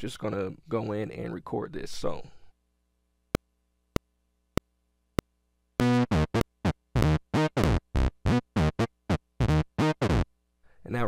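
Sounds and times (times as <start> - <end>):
synth lead playing short notes: 5.8 - 10.2.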